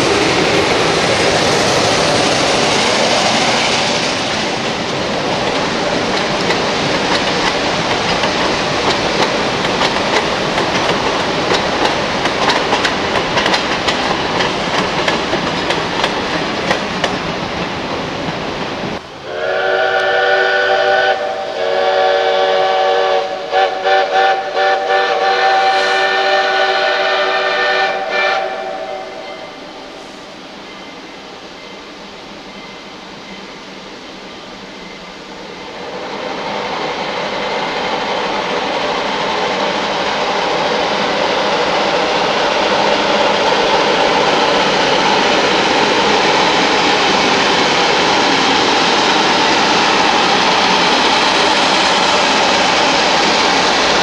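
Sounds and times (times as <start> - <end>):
train wheels clattering on rails: 0.0 - 19.0, 34.8 - 54.0
steam locomotive whistle chord: 19.2 - 30.2.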